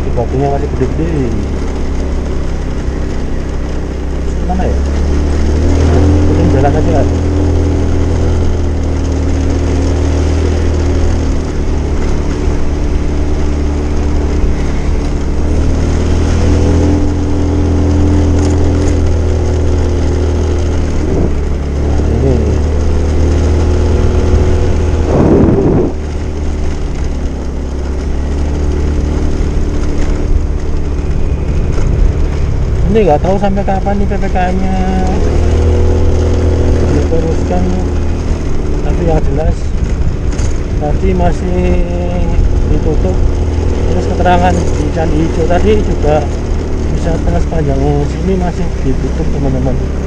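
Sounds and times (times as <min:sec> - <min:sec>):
motorcycle engine running: 0:00.0 - 0:50.0
wind noise on microphone: 0:20.9 - 0:22.5, 0:23.6 - 0:27.4, 0:38.4 - 0:43.9.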